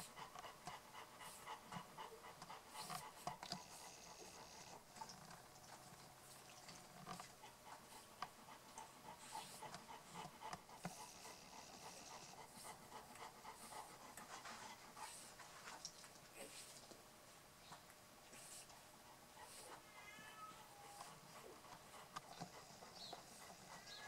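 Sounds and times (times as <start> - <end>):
dog panting: 0.0 - 19.9, 20.6 - 24.0
small clicks and smacks: 1.8 - 4.3, 4.9 - 8.9.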